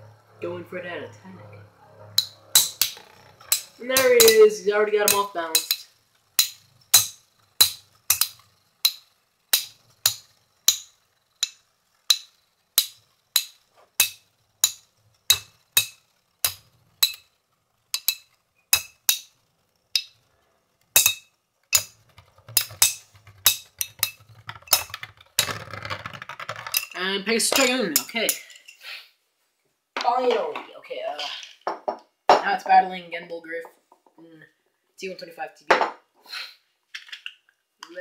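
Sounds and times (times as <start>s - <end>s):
spinning tops clashing metal clinks: 2.2s - 20.2s, 20.9s - 28.8s.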